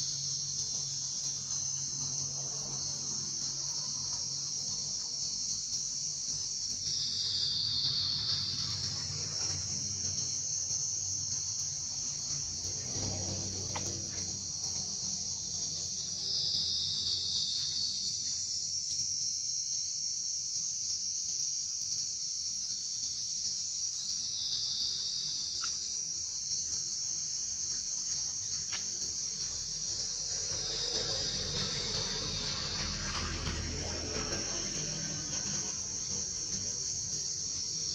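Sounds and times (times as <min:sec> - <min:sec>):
forest insects droning: 0:00.0 - 0:37.9.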